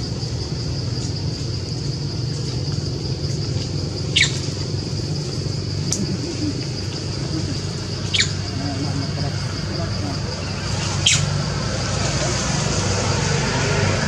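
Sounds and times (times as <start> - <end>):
high insect buzz: 0.0 - 14.0
high animal squeaks: 8.0 - 8.5.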